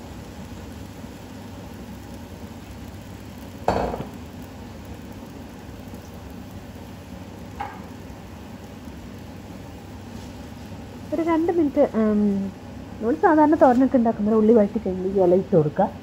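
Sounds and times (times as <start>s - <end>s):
greens sizzling in a pan: 0.0s - 16.0s
utensil clanking on pan: 3.7s - 4.2s, 7.6s - 7.9s.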